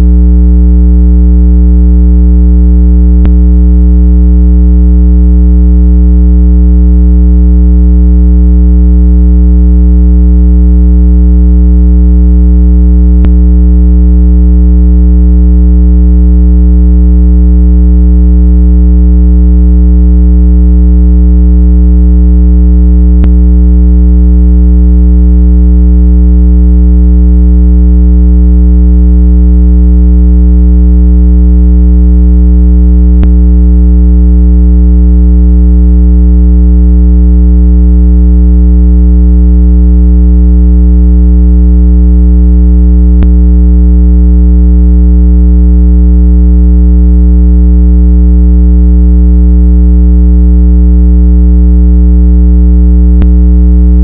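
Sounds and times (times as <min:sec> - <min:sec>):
low-pitched electronic tone: 0:00.0 - 0:00.2, 0:03.1 - 0:03.5, 0:13.1 - 0:13.5, 0:23.2 - 0:23.4, 0:33.2 - 0:33.4, 0:43.2 - 0:43.4.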